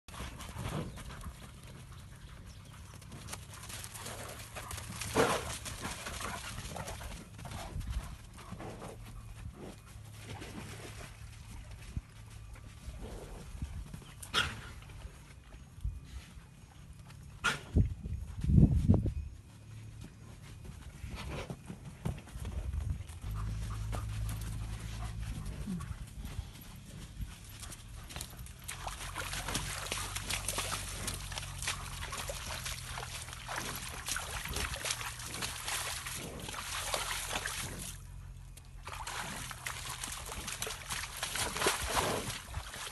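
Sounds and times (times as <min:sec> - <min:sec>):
steady low hum: 0:00.1 - 0:42.9
dog panting: 0:23.2 - 0:28.4
dog squelching in mud: 0:27.4 - 0:42.9.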